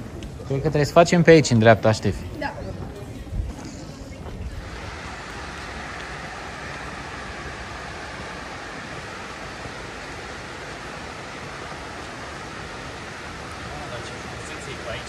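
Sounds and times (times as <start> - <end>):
running water rushing: 4.5 - 15.0.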